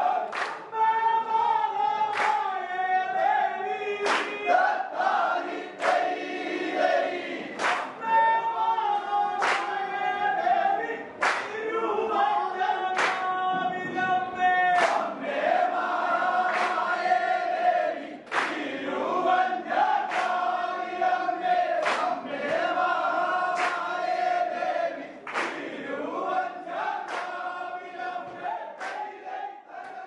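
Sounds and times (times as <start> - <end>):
group singing in unison: 0.0 - 30.0
sharp clap-like beat: 0.1 - 0.8, 2.1 - 2.6, 4.0 - 8.2, 9.3 - 10.0, 11.1 - 11.7, 12.8 - 29.2.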